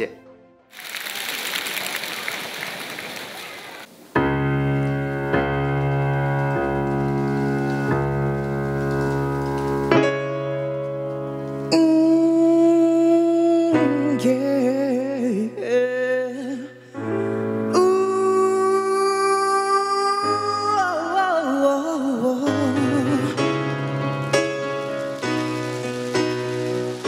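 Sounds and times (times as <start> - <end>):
man singing: 11.7 - 17.0, 17.7 - 23.6.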